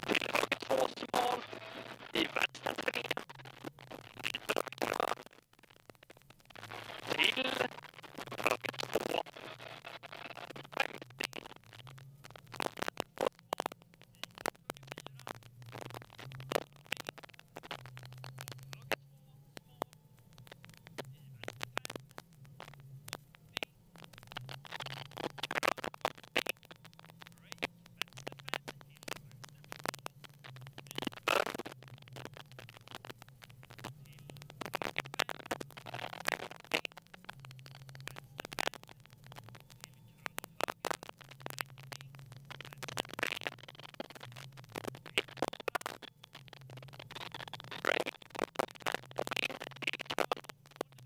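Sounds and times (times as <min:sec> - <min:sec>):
crackling and scraping: 0:00.0 - 0:51.0.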